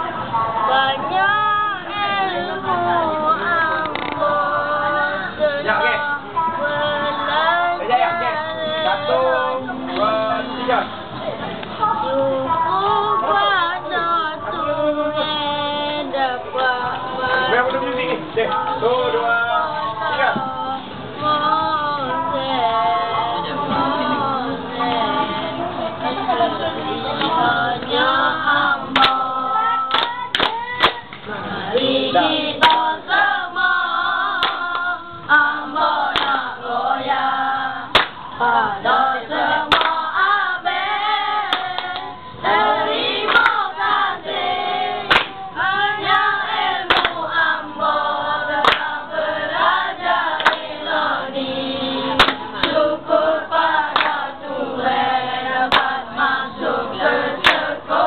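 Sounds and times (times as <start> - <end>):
boys singing a chorus: 0.0 - 58.0
hand claps: 28.9 - 29.2, 29.9 - 31.2, 32.6 - 32.9, 34.4 - 34.9, 36.1 - 36.4, 37.9 - 38.2, 39.7 - 40.0, 41.5 - 42.1, 43.2 - 43.6, 45.1 - 45.4, 46.9 - 47.2, 48.6 - 49.0, 50.4 - 50.8, 52.2 - 52.8, 53.9 - 54.3, 55.7 - 56.0, 57.4 - 57.7.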